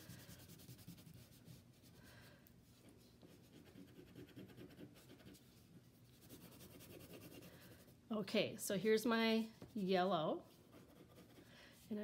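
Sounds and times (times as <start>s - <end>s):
crayon scratching on paper: 3.2s - 5.4s, 6.2s - 7.5s, 10.7s - 11.4s.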